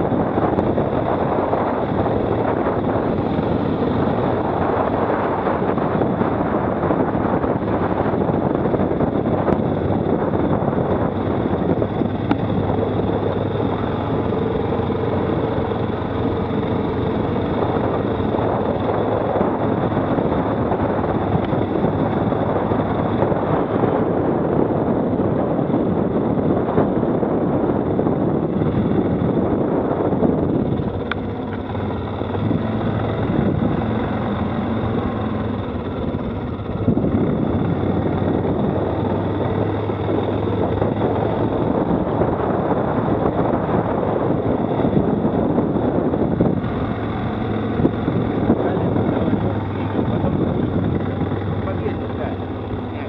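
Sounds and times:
quad bike engine running: 0.0 - 53.0.

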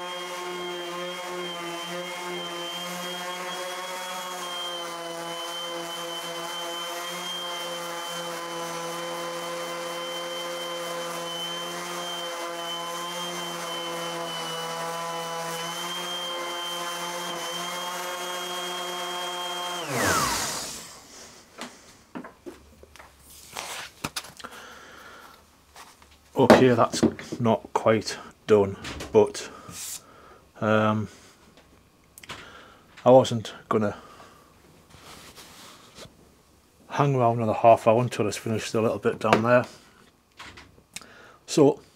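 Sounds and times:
orbital sander running: 0.0 - 21.4.

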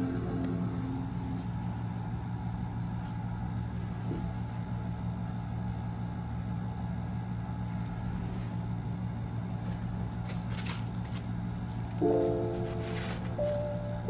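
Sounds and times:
steady low hum: 0.0 - 14.0
laptop startup chime: 12.0 - 14.0.

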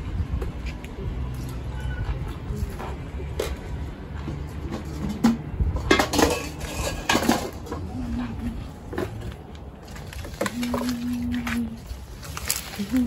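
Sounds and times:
metal pots and utensils clinking: 4.7 - 7.9.

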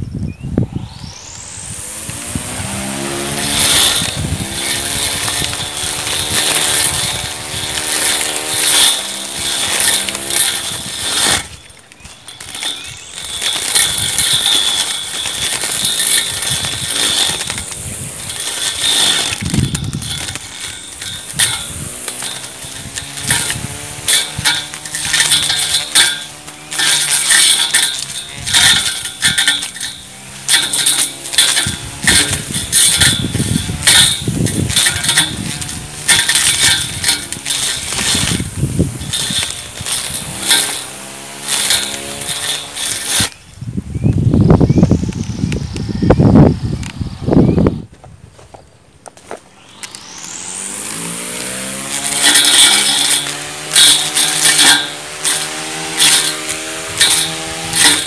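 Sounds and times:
electric grass trimmer whining: 0.5 - 47.9, 49.0 - 58.0
grass stems ticking against blade: 1.8 - 43.4, 49.7 - 58.0.

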